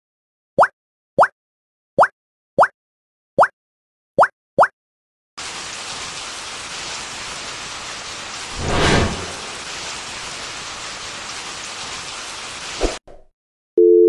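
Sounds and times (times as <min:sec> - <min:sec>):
rain-like hiss: 0:05.4 - 0:13.0
low rumble: 0:08.5 - 0:09.6.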